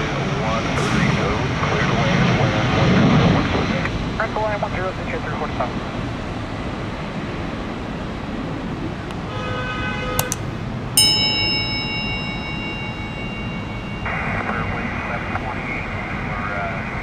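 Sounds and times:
metallic bell-like ding: 11.0 - 15.5
chime tones: 11.0 - 15.7.

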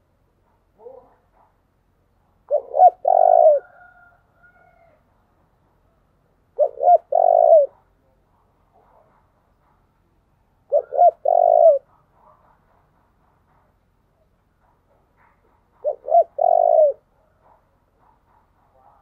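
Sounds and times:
dove cooing: 0.8 - 1.5, 2.4 - 5.0, 6.5 - 7.9, 10.6 - 12.8, 14.6 - 19.0.

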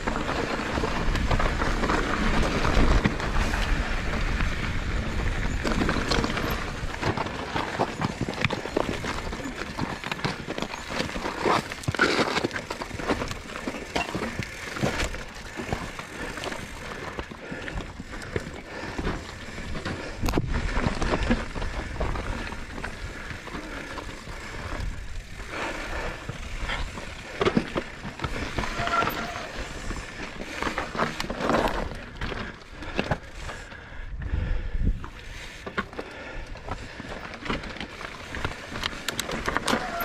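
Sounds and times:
tyres crunching over gravel: 0.0 - 33.7, 35.1 - 40.0
bike clattering and knocking: 5.2 - 24.6, 26.0 - 33.2, 35.6 - 40.0.

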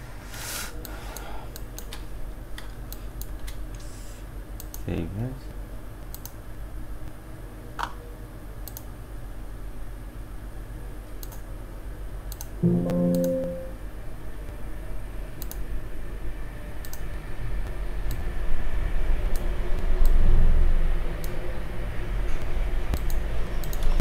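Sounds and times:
computer mouse clicking: 4.6 - 4.8, 6.1 - 6.4, 8.6 - 8.9, 11.2 - 11.5, 15.4 - 15.6, 16.8 - 17.0, 23.0 - 23.9
short pitched tone: 12.6 - 13.8.

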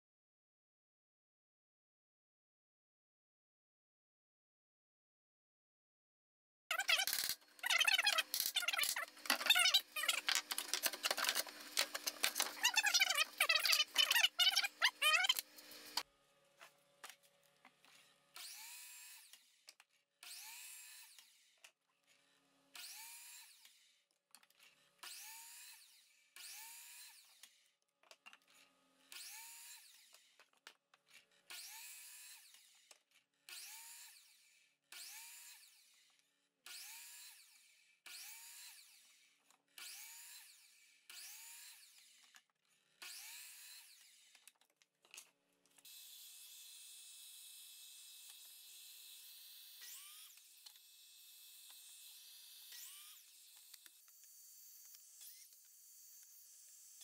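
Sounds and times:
miter saw cutting wood: 6.8 - 16.8, 17.8 - 19.6, 20.2 - 23.9, 25.0 - 27.6, 28.9 - 30.4, 31.3 - 32.9, 33.5 - 44.4, 45.8 - 57.0
saw motor whine: 7.9 - 16.1, 17.8 - 19.5, 45.9 - 57.0.

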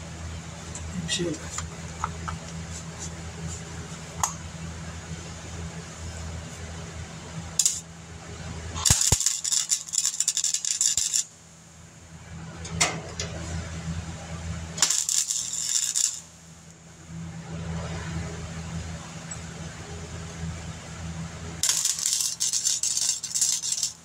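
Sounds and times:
welder crackling and sputtering: 7.6 - 7.8, 8.7 - 11.3, 14.8 - 16.4, 21.6 - 24.0.

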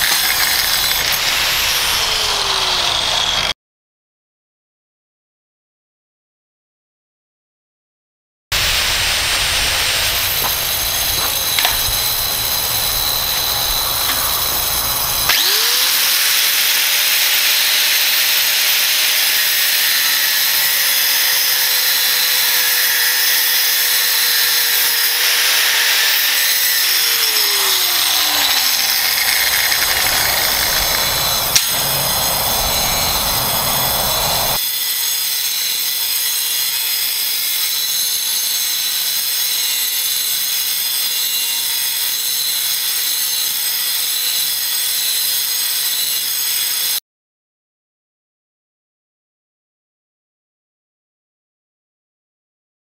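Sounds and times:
angle grinder cutting steel: 0.0 - 3.6, 8.6 - 47.0.

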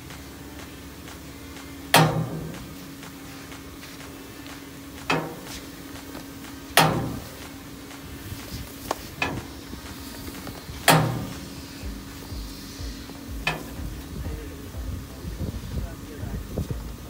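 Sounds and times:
steady hum: 0.0 - 17.0
loud metallic clanks: 1.9 - 2.8, 5.1 - 5.6, 6.8 - 7.4, 9.2 - 9.6, 10.8 - 12.0, 13.4 - 14.0.

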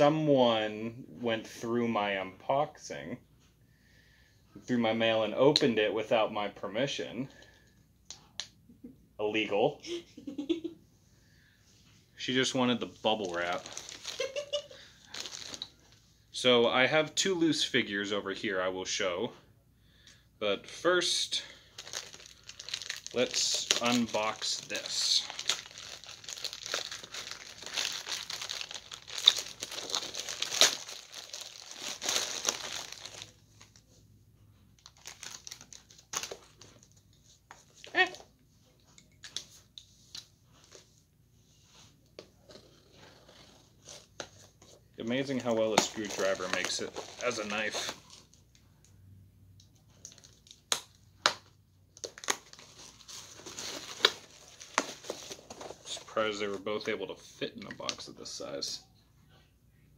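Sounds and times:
plastic packaging crinkling: 13.1 - 15.9, 21.7 - 33.8, 34.8 - 37.7, 45.1 - 48.4, 49.9 - 51.0, 52.0 - 56.5.

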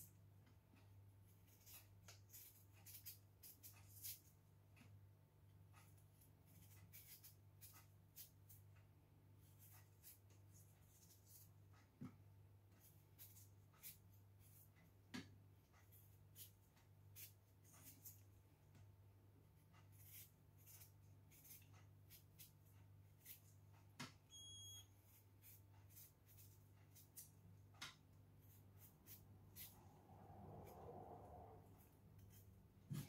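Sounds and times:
knife scraping potato skin: 1.3 - 4.4, 5.9 - 8.6, 9.4 - 11.6, 12.8 - 14.7, 15.8 - 18.4, 19.6 - 23.8, 25.0 - 29.8.

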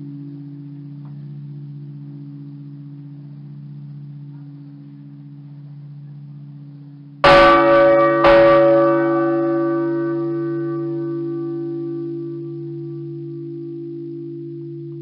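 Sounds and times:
large bell ringing: 7.2 - 15.0.

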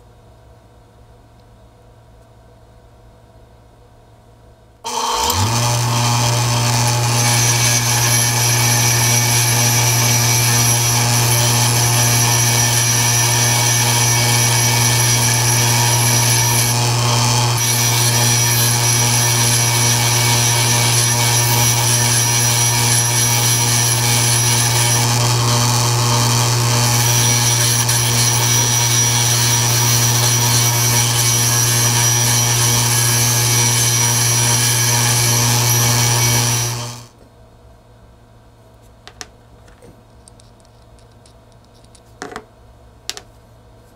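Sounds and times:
bench grinder humming: 4.9 - 37.1.

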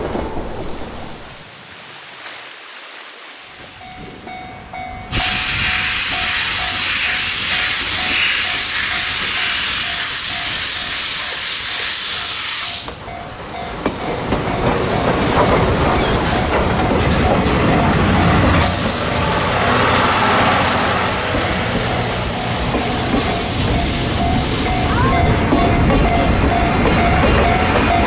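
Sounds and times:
train rumbling and clattering past: 3.6 - 28.0
loud steam hiss: 5.1 - 25.5.

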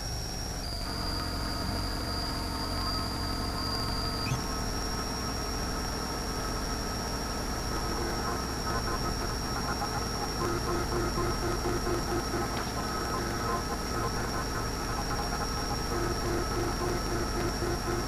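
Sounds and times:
milling machine cutting metal: 7.5 - 18.0.

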